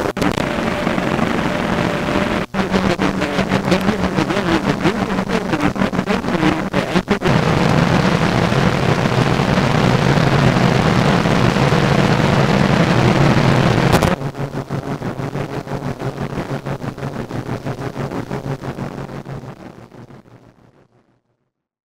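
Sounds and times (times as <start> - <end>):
low hum: 0.0 - 15.7
harsh noise from record: 0.0 - 21.2
pulsing crackle: 0.0 - 21.2
turntable click: 13.9 - 14.2.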